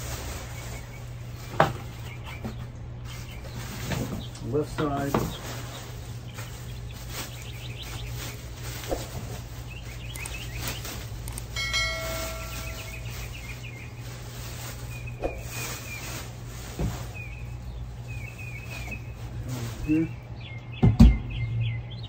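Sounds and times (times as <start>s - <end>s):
small birds chirping: 0.1s - 22.0s
plastic wrap rustling: 5.0s - 19.9s
steady low hum: 5.2s - 22.0s
short pitched tone: 11.6s - 13.3s.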